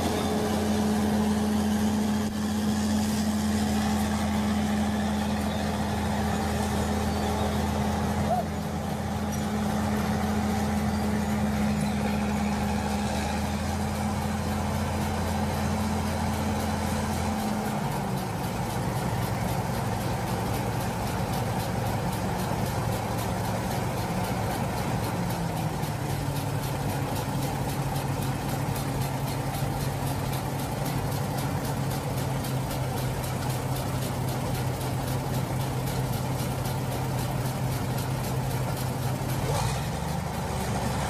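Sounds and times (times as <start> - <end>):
truck engine idling: 0.0 - 41.0.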